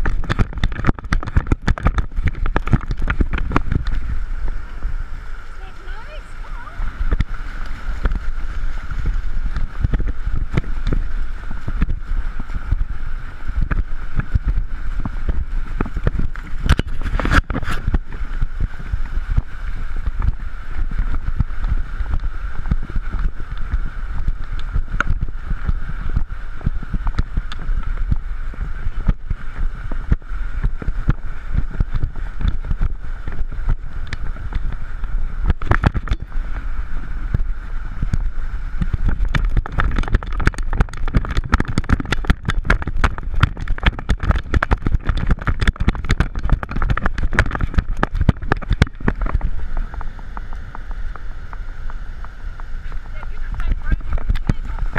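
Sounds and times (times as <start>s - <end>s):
knocks and thumps from strides: 0.0s - 4.1s, 37.3s - 54.9s
splashing in shallow surf: 0.0s - 54.9s
wind rumbling on camera: 0.0s - 54.9s.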